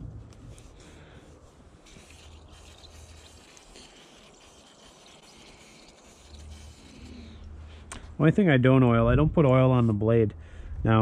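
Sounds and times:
aerosol can spraying: 0.3s - 7.4s.

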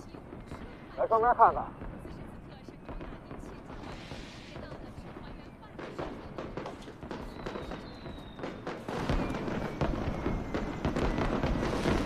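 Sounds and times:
firecrackers crackling and popping: 0.0s - 12.0s
falling firework whistles: 2.9s - 12.0s.

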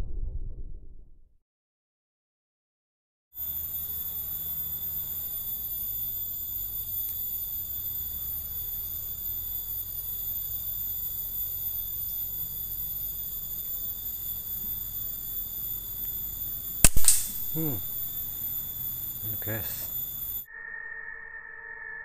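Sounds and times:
low rumble: 0.0s - 1.4s
high-pitched insect drone: 3.4s - 22.0s.

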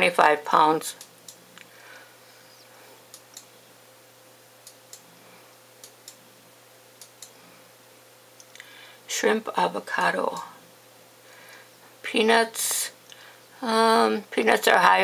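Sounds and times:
faint electrical hum: 0.0s - 15.0s
sharp computer clicks: 5.8s - 6.2s.

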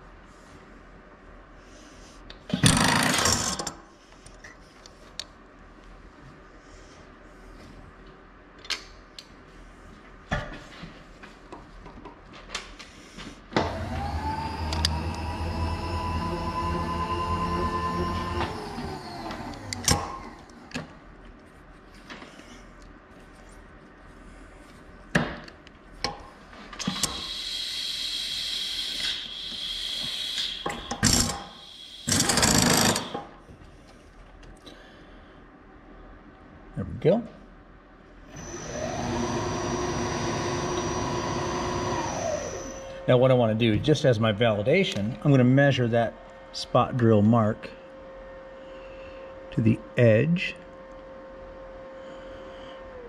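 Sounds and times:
electric motor whining and humming: 13.6s - 20.5s, 26.8s - 33.2s, 38.4s - 42.8s
loud rough cutting noise: 26.9s - 33.3s.

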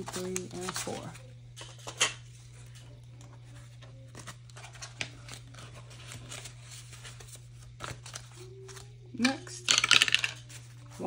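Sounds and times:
paper bills rustling: 3.6s - 8.9s.

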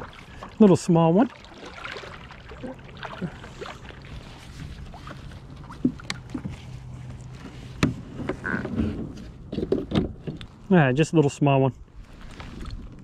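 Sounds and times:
paddle knocking on kayak hull: 5.7s - 6.6s.

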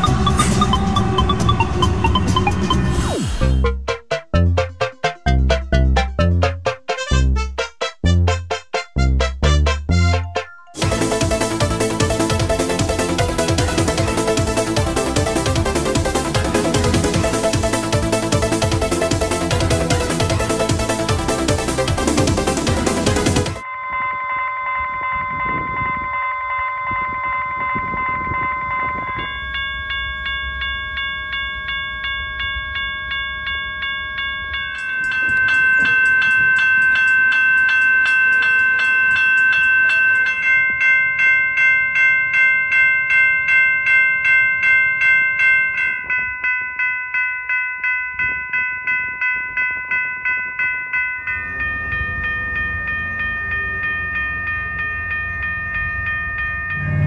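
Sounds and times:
railroad crossing bells ringing: 0.0s - 2.9s, 10.3s - 57.0s.

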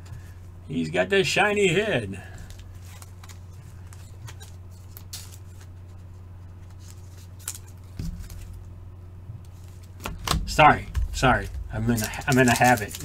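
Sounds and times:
low electrical hum: 0.0s - 13.0s
trading card rustling and clicking: 2.4s - 8.7s, 9.4s - 13.0s.

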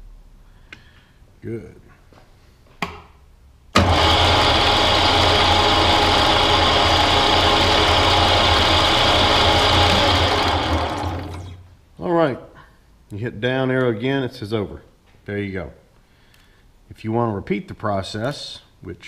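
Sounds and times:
milling machine motor hum: 3.8s - 11.7s.

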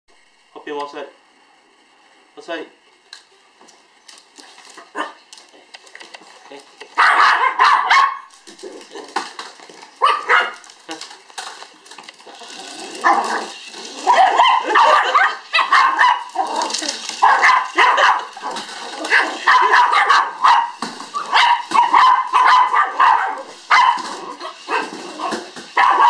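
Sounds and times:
small dogs barking: 4.7s - 5.2s, 6.9s - 9.1s, 9.9s - 10.7s, 13.0s - 26.0s.

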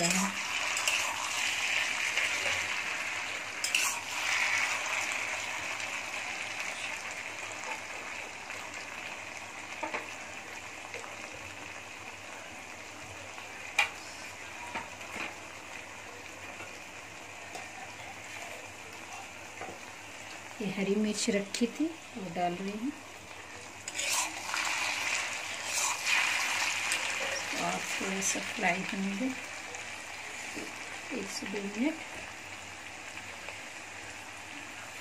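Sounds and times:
metal spatula scraping wok: 0.0s - 2.6s, 3.6s - 4.8s, 23.8s - 27.6s
potatoes sizzling in oil: 0.0s - 35.0s.

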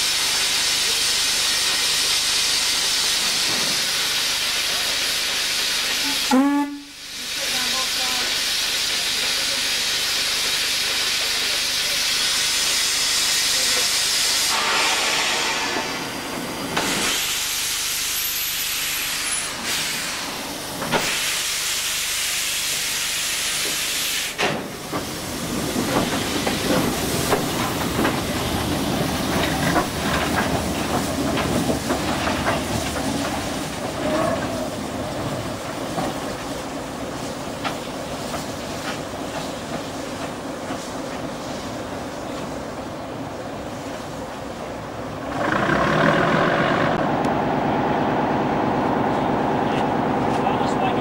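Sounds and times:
steam hissing from locomotive: 0.0s - 47.0s
locomotive rumbling on track: 23.6s - 51.0s.

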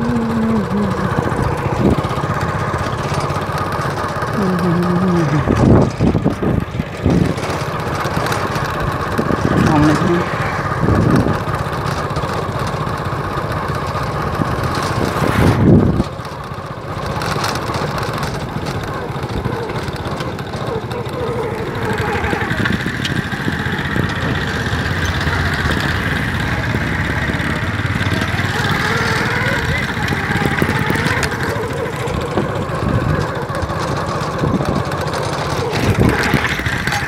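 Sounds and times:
small engine running: 0.0s - 37.0s.

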